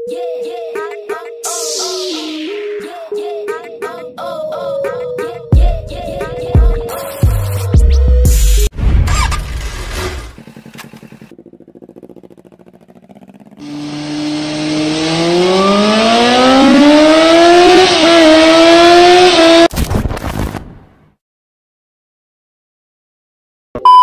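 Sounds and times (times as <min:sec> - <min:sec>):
motorcycle engine revving: 0:09.0 - 0:19.7.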